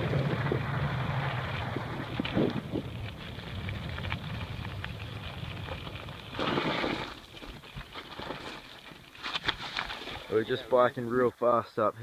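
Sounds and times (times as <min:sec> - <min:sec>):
wind rushing over microphone: 0:00.0 - 0:06.2.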